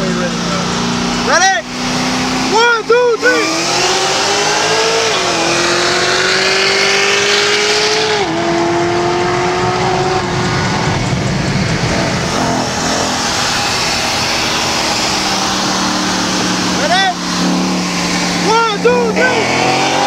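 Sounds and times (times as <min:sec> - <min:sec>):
car engines at full throttle: 0:00.0 - 0:20.0
low engine rumble: 0:08.3 - 0:20.0.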